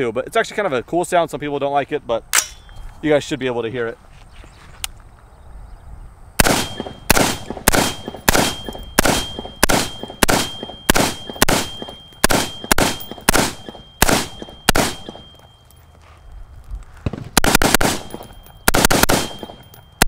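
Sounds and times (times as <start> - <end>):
rifle gunshots: 6.4 - 15.3, 17.1 - 19.6
thin high-pitched ring: 8.0 - 16.3, 18.0 - 18.7, 19.3 - 20.0.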